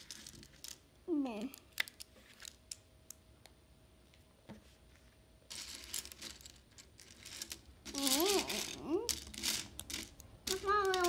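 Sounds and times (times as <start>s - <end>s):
rustling: 4.6s - 11.0s
plastic bricks clicking: 5.8s - 11.0s.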